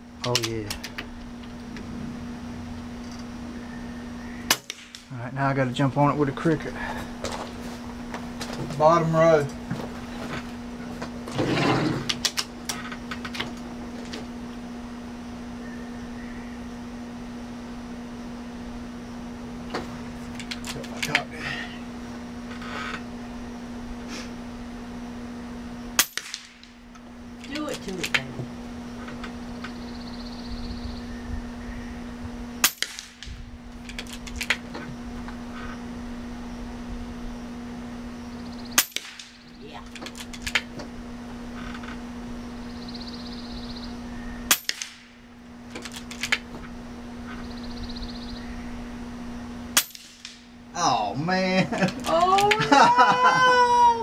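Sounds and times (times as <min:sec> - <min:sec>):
air rifle shots: 0:04.5 - 0:05.1, 0:26.0 - 0:26.8, 0:32.6 - 0:33.4, 0:38.8 - 0:39.4, 0:44.5 - 0:45.2.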